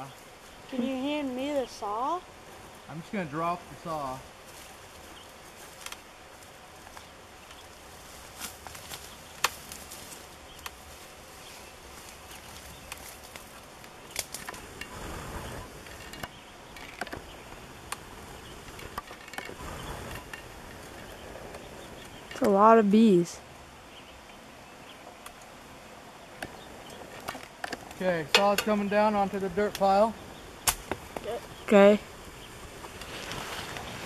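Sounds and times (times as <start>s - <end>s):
bee swarm buzzing: 0.0s - 34.0s
branch clicks: 12.3s - 14.9s.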